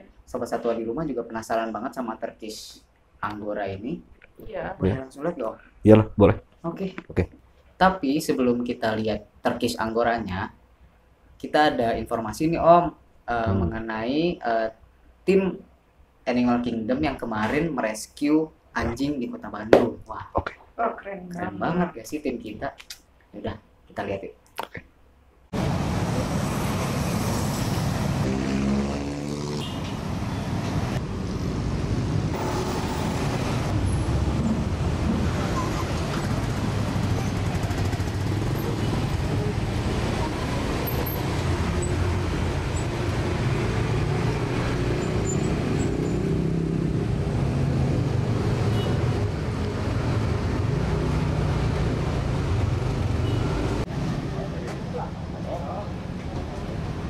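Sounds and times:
cars and motorbikes passing: 25.5 - 57.0
vehicle engine passing by: 25.6 - 54.7.

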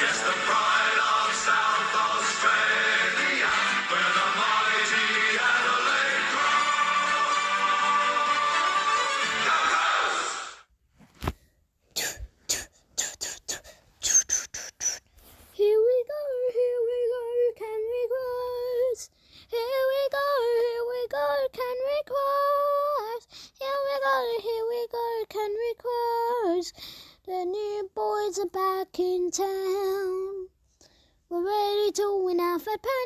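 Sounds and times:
person singing unaccompanied: 0.0 - 10.6.

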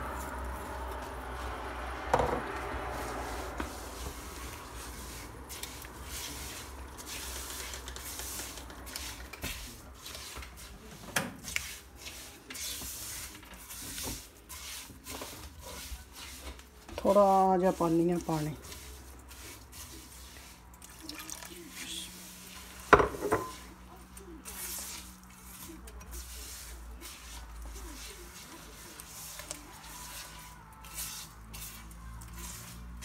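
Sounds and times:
spatula scraping a pan: 11.4 - 21.0, 21.6 - 33.0
knock on pan: 22.9 - 23.5.

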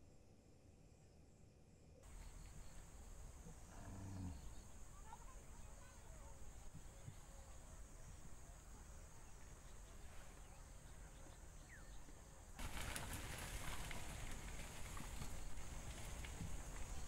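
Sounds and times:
steady high hiss: 2.1 - 13.0
irregular clicks and rustles: 12.1 - 17.0.

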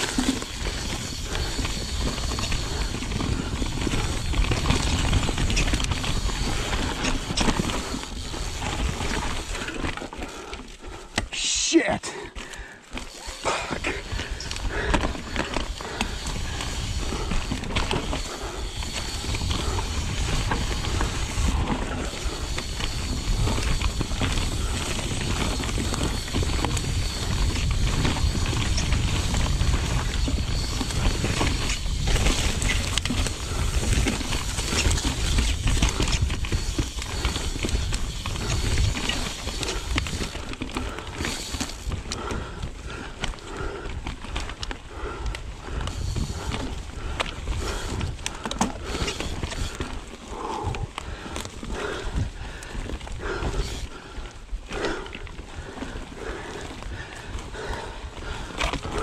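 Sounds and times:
bike tyres rolling over dirt: 0.0 - 11.4, 12.1 - 59.0
wind rumble on microphone: 13.8 - 40.6, 44.9 - 59.0.

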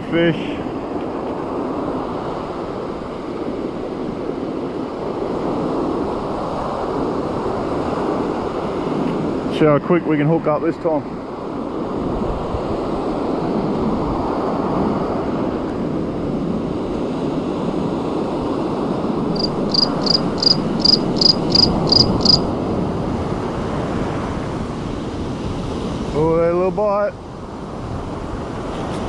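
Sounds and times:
wind on microphone: 11.1 - 26.2.

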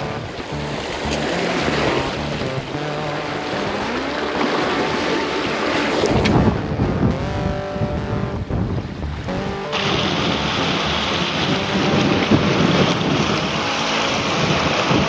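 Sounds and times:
surf washing against rocks: 0.0 - 6.5, 9.8 - 15.0
wind buffeting microphone: 0.0 - 15.0.

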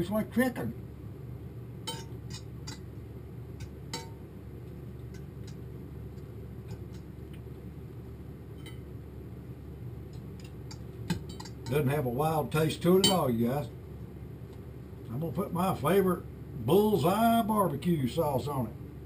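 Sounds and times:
steady low hum: 0.0 - 19.0
fork clinking against skillet: 1.9 - 2.9, 3.6 - 4.2.

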